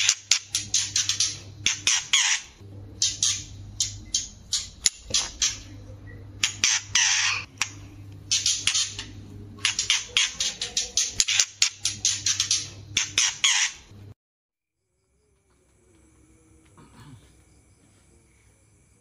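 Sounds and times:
bird harsh chattering calls: 0.0 - 13.9
steady low hum: 0.0 - 14.2, 14.8 - 19.0.

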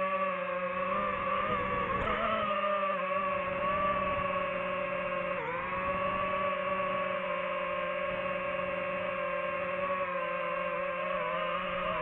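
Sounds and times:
drone propellers whining: 0.0 - 12.0.

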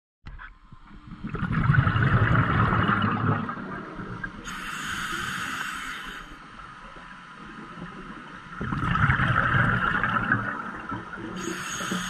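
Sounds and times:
breath bubbles gurgling underwater: 1.0 - 5.8, 7.6 - 12.0
regulator inhale hiss: 4.4 - 6.4, 11.4 - 12.0.

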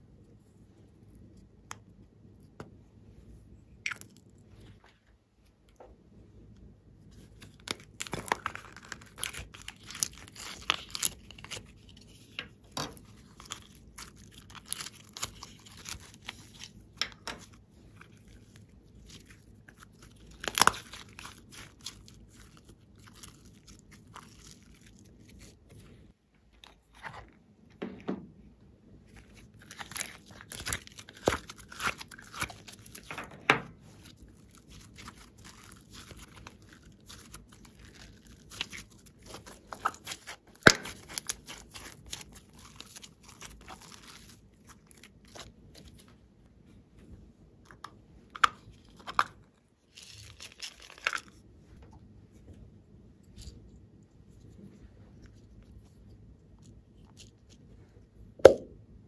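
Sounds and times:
hands squishing slime: 7.1 - 27.3, 29.1 - 46.2
sharp slime pop: 40.6 - 41.0, 58.4 - 58.8.

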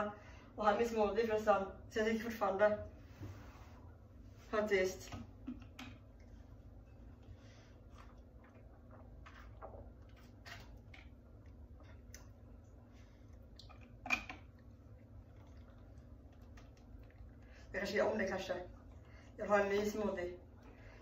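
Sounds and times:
sipping and swallowing: 6.1 - 17.7.

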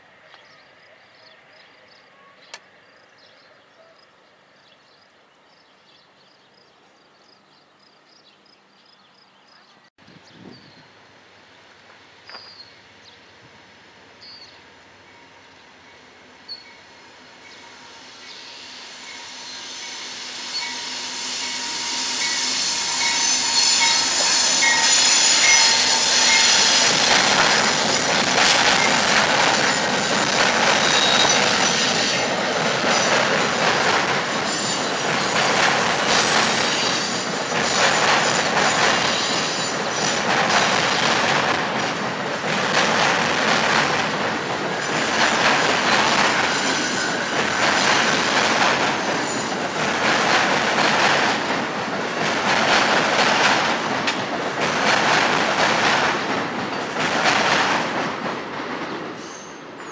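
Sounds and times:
wheels rumbling on rail: 10.0 - 59.9
high wheel squeal: 17.5 - 33.1, 34.2 - 40.2, 45.9 - 48.2.

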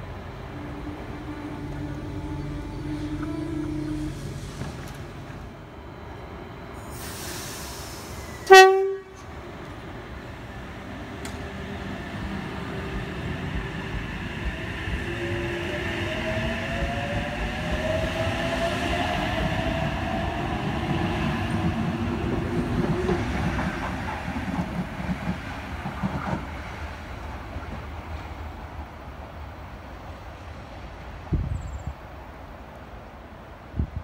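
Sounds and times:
electric train motors whining: 0.0 - 8.6
train cars rumbling: 0.0 - 32.4.

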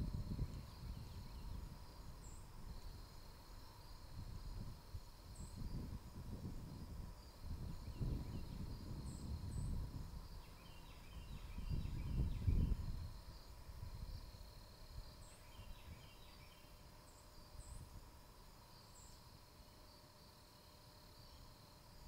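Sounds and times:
wind gusting across microphone: 0.0 - 16.2.

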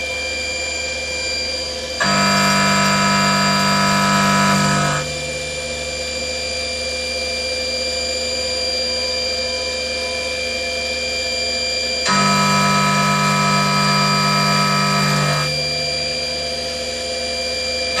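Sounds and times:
milling machine cutting metal: 2.0 - 5.1, 12.1 - 15.9.

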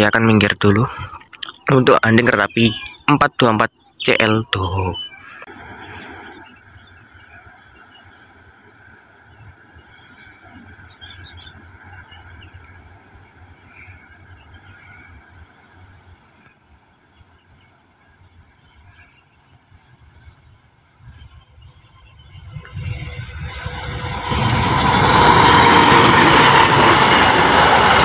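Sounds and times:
insects trilling: 0.0 - 28.0.

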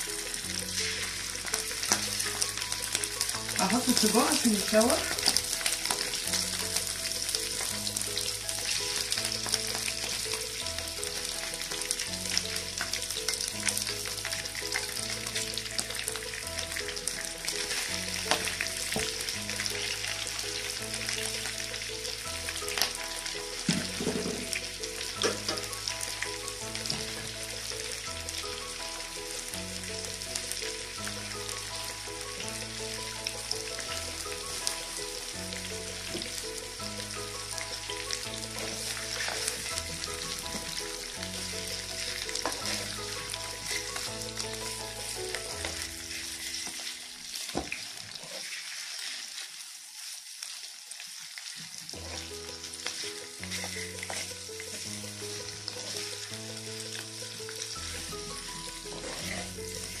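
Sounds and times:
background music: 0.0 - 47.5, 51.9 - 60.0
sausages sizzling in pan: 0.0 - 60.0
wooden spatula stirring: 0.2 - 22.9, 38.3 - 50.6, 51.4 - 60.0.

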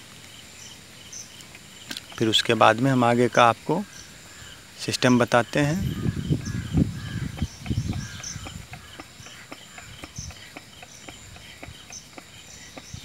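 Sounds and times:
fuel pump clicking: 7.3 - 13.0.

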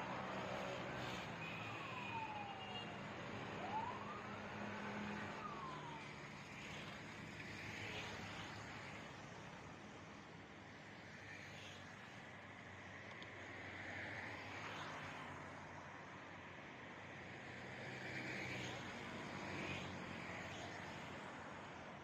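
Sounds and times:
distant siren wailing: 0.3 - 6.2.

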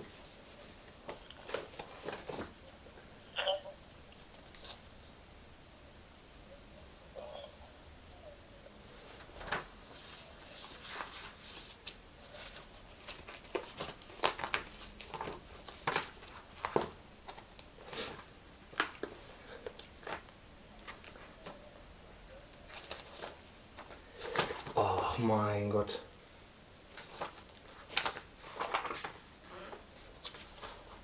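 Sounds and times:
paper rustling: 0.0 - 2.6, 4.2 - 4.8, 8.9 - 21.6, 22.5 - 24.8, 26.9 - 31.0.

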